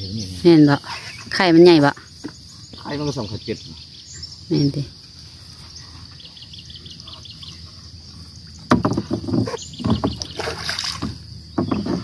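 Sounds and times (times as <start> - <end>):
high insect drone: 0.0 - 12.0
water splashing and sloshing: 7.0 - 12.0.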